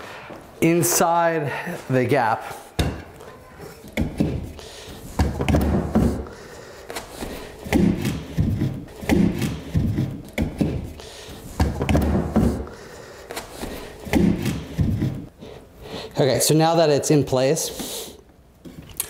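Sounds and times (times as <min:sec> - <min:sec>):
wooden frame thumping and knocking: 0:05.2 - 0:06.3, 0:11.6 - 0:12.7.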